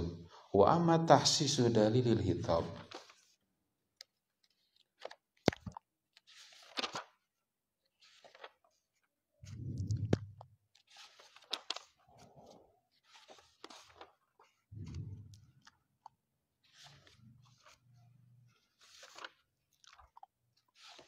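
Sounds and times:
book pages rustling: 0:02.7 - 0:03.4, 0:04.0 - 0:21.0
low bump: 0:09.4 - 0:10.4, 0:14.8 - 0:15.5.

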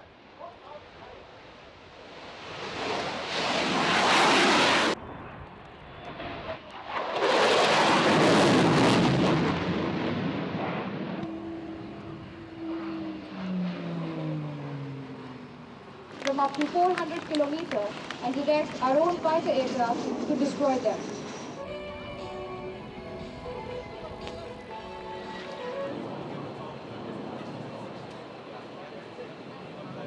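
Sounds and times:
fighter jet engine roar: 0:00.1 - 0:30.0
engine whine falling in pitch: 0:08.4 - 0:16.2.

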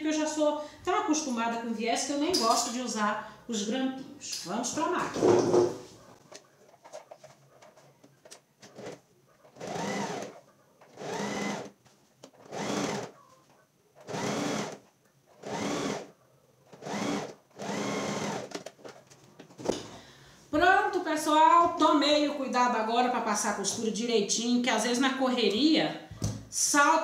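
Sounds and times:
sewing machine stitching: 0:08.6 - 0:11.7, 0:12.3 - 0:13.2, 0:14.0 - 0:14.8, 0:15.4 - 0:16.1, 0:16.7 - 0:18.6.

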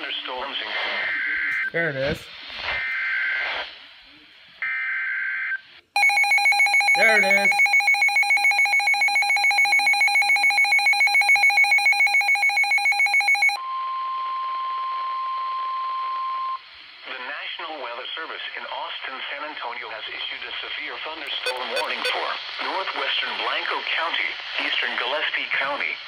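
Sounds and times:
rapidly pulsing alert alarm: 0:06.0 - 0:13.6, 0:21.3 - 0:22.2
data screech: 0:21.3 - 0:22.2.

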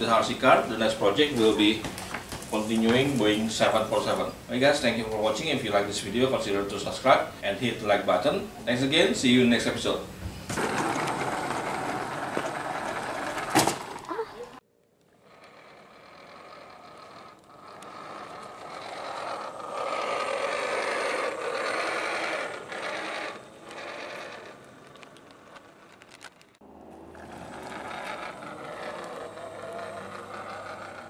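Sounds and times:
rc car motor whirring: 0:09.0 - 0:31.0.

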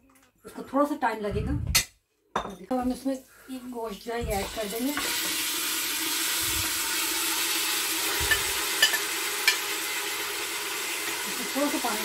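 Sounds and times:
meat sizzling in hot oil: 0:04.3 - 0:12.0.

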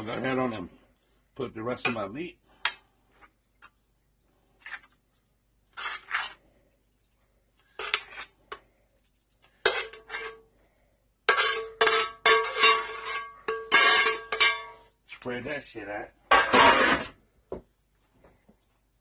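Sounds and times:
metal spoon scraping pans: 0:05.7 - 0:06.5, 0:07.7 - 0:08.6, 0:09.6 - 0:10.5, 0:11.2 - 0:14.9, 0:16.3 - 0:17.2.

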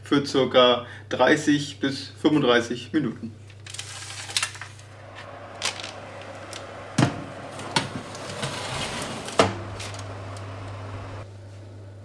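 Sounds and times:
oven door knocks: 0:07.0 - 0:09.7
metal baking tray clattering: 0:07.0 - 0:10.1.

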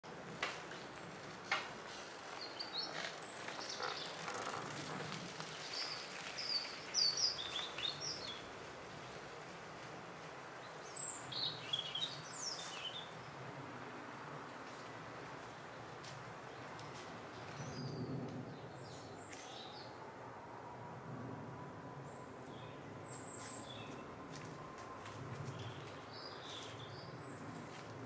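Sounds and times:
steady outdoor hiss: 0:00.0 - 0:28.0
small birds chirping: 0:01.9 - 0:08.5, 0:10.6 - 0:13.3, 0:25.4 - 0:27.9.

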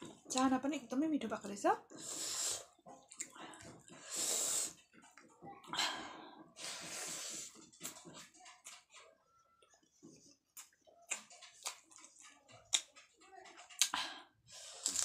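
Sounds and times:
hissing breaths: 0:01.9 - 0:04.9, 0:05.7 - 0:07.6
person chewing food: 0:01.9 - 0:15.0.

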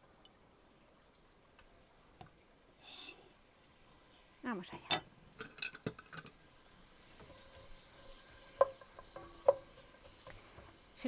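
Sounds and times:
onion sizzling in a pan: 0:02.8 - 0:11.0
spatula tapping a pan: 0:08.5 - 0:10.0.

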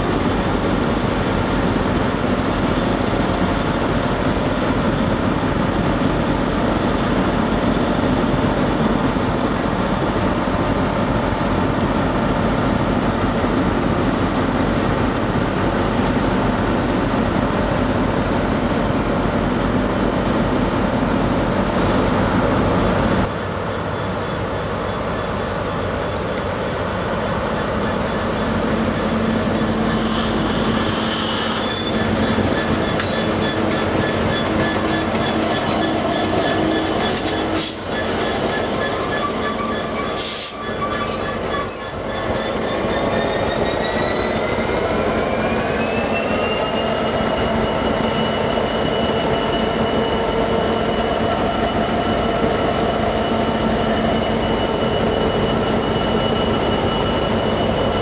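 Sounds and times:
diesel locomotive engine running: 0:00.0 - 0:58.0
diesel train pulling out: 0:00.0 - 0:58.0
metallic wheel squeal: 0:27.5 - 0:58.0.

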